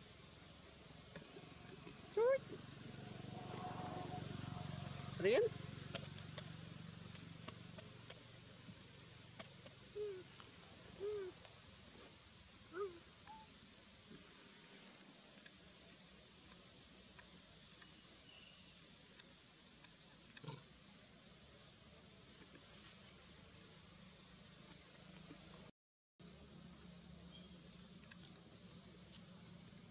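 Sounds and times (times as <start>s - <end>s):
insect chorus drone: 0.0s - 29.9s
faint short calls: 11.0s - 11.4s.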